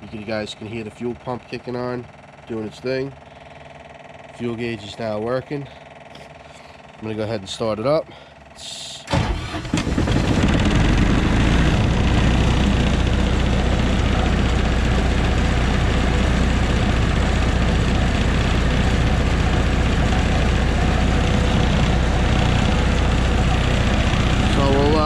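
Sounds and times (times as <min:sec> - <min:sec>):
diesel generator starting and running: 0:00.0 - 0:25.0.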